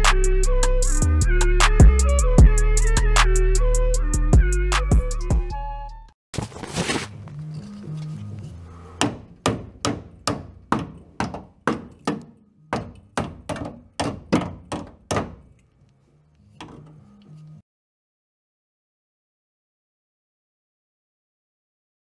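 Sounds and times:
hammer striking sheet steel: 0:09.0 - 0:15.5.

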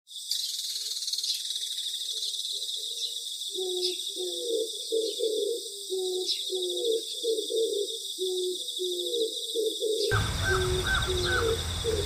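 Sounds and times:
crickets chirring: 0:06.8 - 0:12.0
low repeated call: 0:10.1 - 0:12.0.

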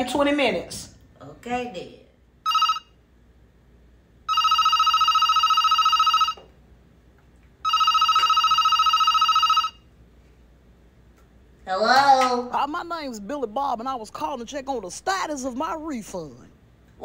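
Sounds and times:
telephone ringing: 0:02.4 - 0:03.0, 0:04.3 - 0:06.6, 0:07.6 - 0:09.9.

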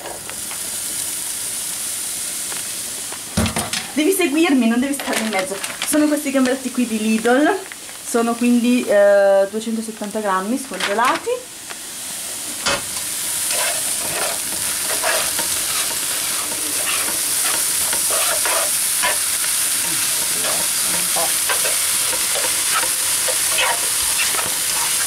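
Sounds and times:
food sizzling in a frying pan: 0:00.0 - 0:25.0
spatula scraping and tapping pan: 0:13.5 - 0:19.2, 0:19.9 - 0:25.0.

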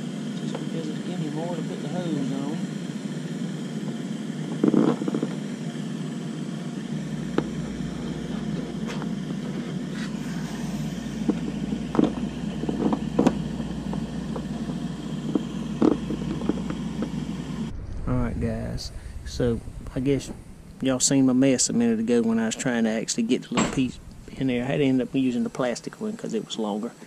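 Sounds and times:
low hum: 0:00.0 - 0:26.6.

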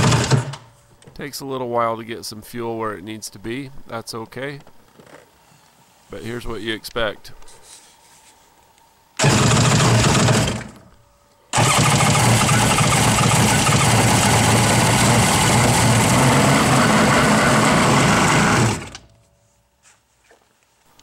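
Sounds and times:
jet ski engine running: 0:11.6 - 0:19.0.

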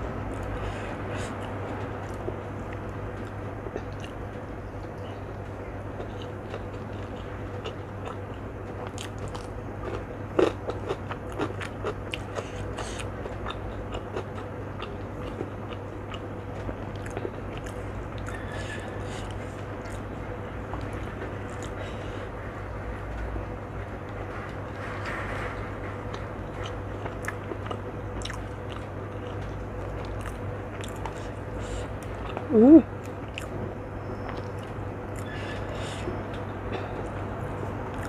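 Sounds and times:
steady low hum: 0:00.0 - 0:38.0
person chewing food: 0:00.3 - 0:04.2, 0:06.0 - 0:20.0, 0:20.7 - 0:22.0, 0:26.1 - 0:33.5.

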